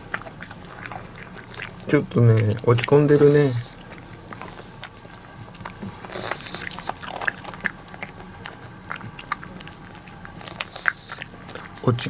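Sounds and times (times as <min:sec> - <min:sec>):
dog chewing and licking: 0:00.0 - 0:12.0.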